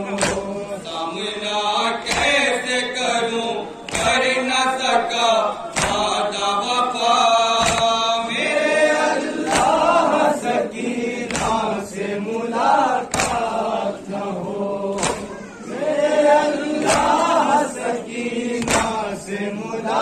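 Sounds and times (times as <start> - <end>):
men chanting in unison: 0.0 - 20.0
chest-beating slaps: 0.1 - 0.6, 2.0 - 2.5, 3.8 - 4.3, 5.7 - 6.2, 7.6 - 8.1, 9.4 - 10.0, 11.2 - 11.8, 13.0 - 13.7, 14.9 - 15.4, 16.8 - 17.3, 18.6 - 19.1.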